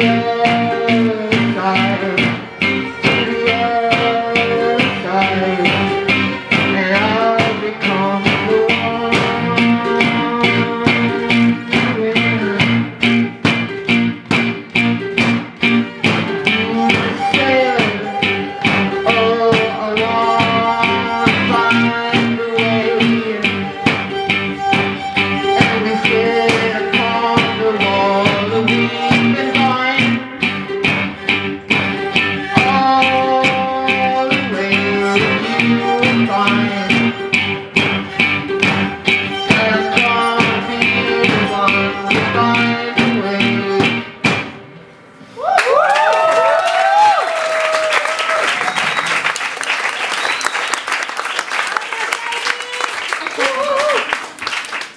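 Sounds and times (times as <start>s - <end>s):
bowed cello and violin: 0.0s - 14.0s, 14.7s - 44.2s
strummed acoustic guitar: 0.0s - 44.8s.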